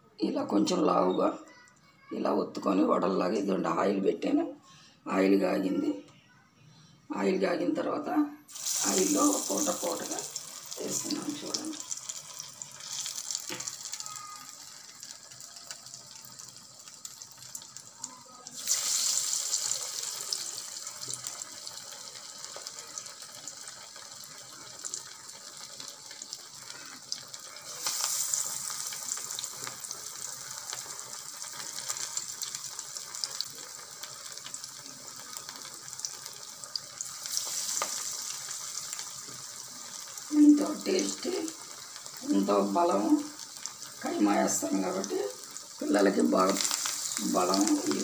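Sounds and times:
food deep-frying in oil: 8.5 - 48.0.

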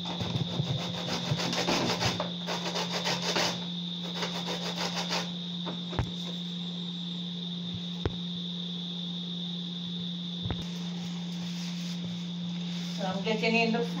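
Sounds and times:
corn scraping on metal grater: 0.0 - 5.3.

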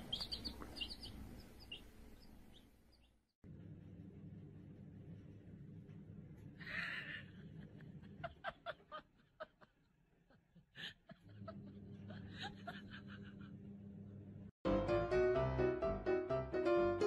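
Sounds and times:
person chuckling: 6.6 - 9.8, 10.4 - 13.7.

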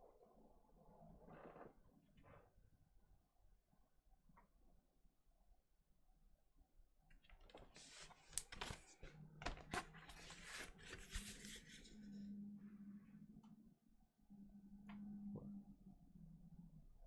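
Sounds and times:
cardboard sleeve rustling and scraping: 7.6 - 12.0.

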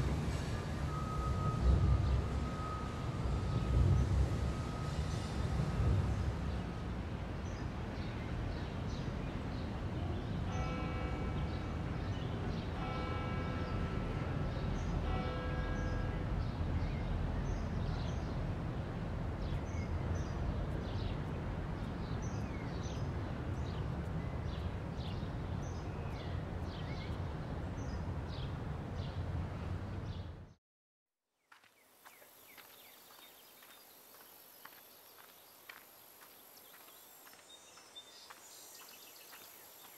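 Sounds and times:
chord horn blasts: 10.4 - 16.6
steady low rumble: 16.2 - 30.1
birds chirping: 19.4 - 29.2.

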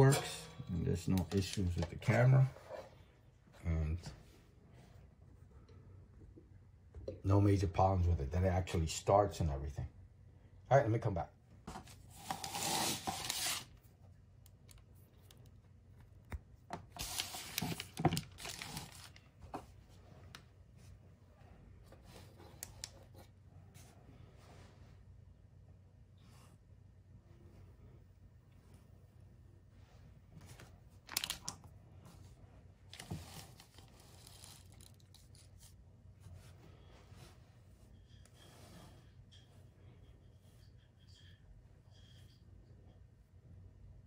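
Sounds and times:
plastic rustling: 11.9 - 13.7, 16.9 - 19.6, 31.0 - 31.6, 32.9 - 35.8
plastic bag crinkling: 17.0 - 19.3, 31.0 - 31.6, 32.9 - 35.5.

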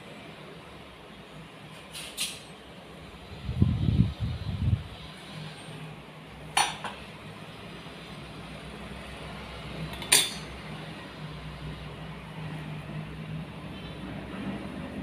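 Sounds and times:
steel kitchenware clinking: 6.6 - 7.0, 9.9 - 10.6.

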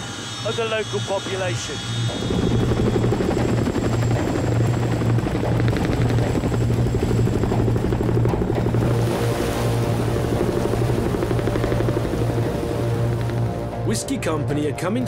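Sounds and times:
thin high whine: 0.0 - 4.4
helicopter rotors beating: 0.0 - 15.0.

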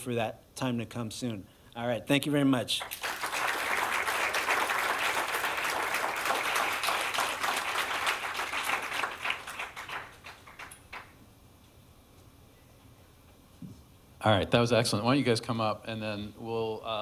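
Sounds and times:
audience applauding: 2.8 - 11.2.

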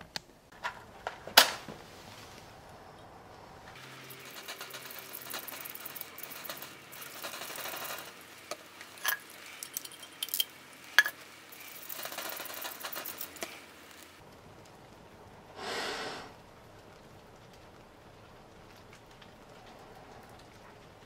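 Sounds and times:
fire crackling and popping: 0.0 - 21.0
fire hissing: 0.4 - 21.0.

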